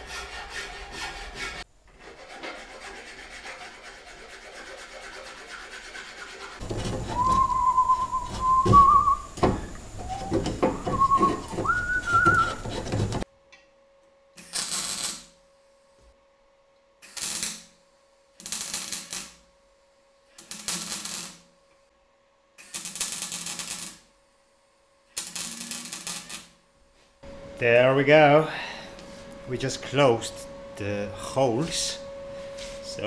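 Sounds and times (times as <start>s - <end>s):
man whistling a tune: 7.1s - 9.3s, 10.0s - 12.6s
electric arc welding bursts: 14.4s - 15.3s, 17.0s - 17.8s, 18.4s - 19.4s, 20.4s - 21.5s, 22.6s - 24.1s, 25.2s - 26.6s
faint steady hum: 26.6s - 33.0s.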